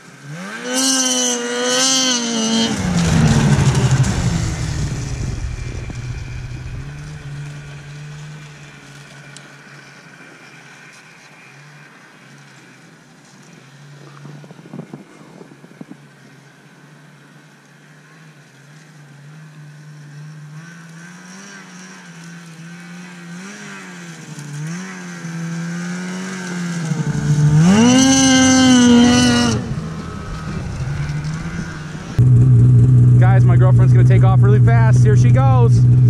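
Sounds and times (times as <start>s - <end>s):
snowmobile engine revving: 0.0s - 10.0s, 19.1s - 36.0s.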